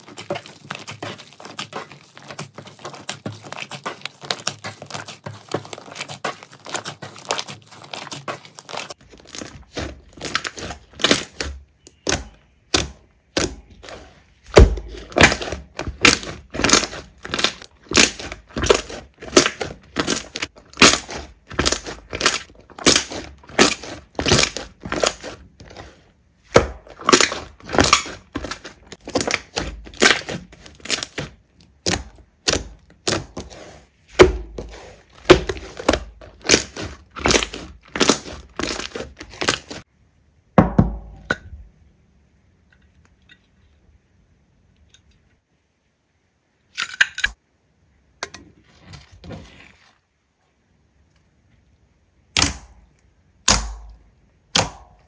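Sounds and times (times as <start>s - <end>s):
slime squeezed crackling and popping: 14.8s - 25.4s, 26.8s - 33.2s, 35.2s - 39.8s.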